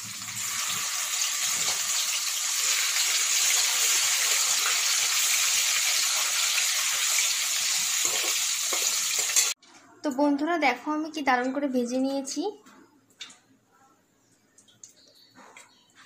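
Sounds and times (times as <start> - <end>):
fish frying in hot oil: 0.0 - 9.6.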